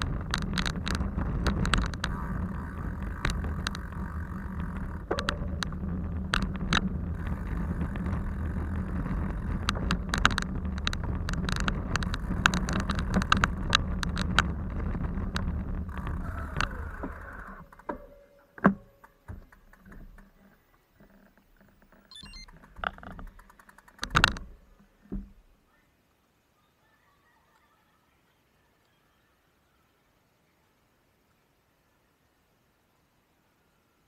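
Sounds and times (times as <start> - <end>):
vehicle engine running: 0.0 - 17.5
rattling clicks: 0.0 - 24.9.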